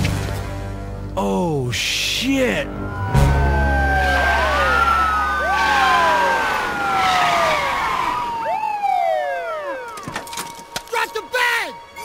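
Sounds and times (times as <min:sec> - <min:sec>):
police sirens wailing: 0:02.4 - 0:10.4.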